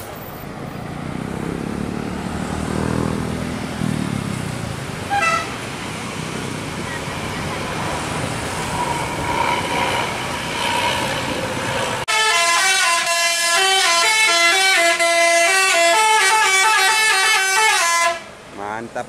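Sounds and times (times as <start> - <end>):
traffic noise: 0.0 - 19.0
musical air horn playing a tune: 5.1 - 5.5, 12.1 - 18.3.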